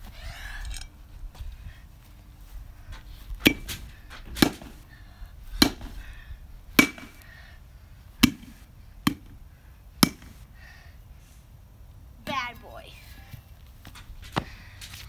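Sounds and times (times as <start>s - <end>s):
baseball bat whacking pumpkin: 3.4s - 4.8s, 5.6s - 6.0s, 6.8s - 7.2s, 8.2s - 9.4s, 10.0s - 10.3s.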